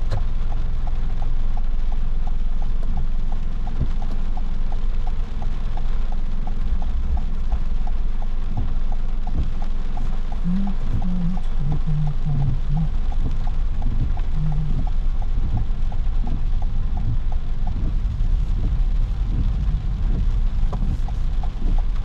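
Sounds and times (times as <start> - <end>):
car turn signal ticking: 0.0 - 22.0
low rumble of car: 0.0 - 22.0
short low hums: 8.5 - 22.0.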